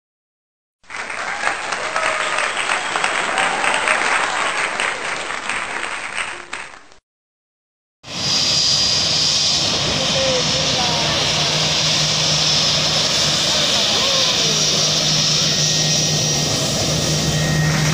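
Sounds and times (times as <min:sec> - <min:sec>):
applause: 0:00.8 - 0:07.0
jet airliner engines: 0:08.1 - 0:17.9.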